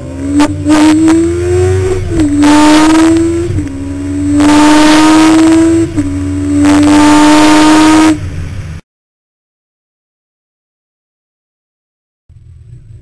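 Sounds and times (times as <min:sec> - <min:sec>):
motorcycle engine accelerating: 0:00.0 - 0:08.8, 0:12.3 - 0:13.0.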